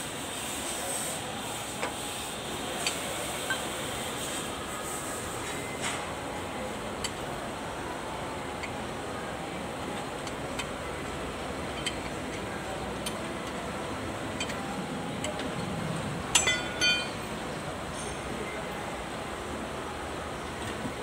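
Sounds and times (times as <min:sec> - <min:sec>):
ringing metal clinks: 0:16.4 - 0:17.3.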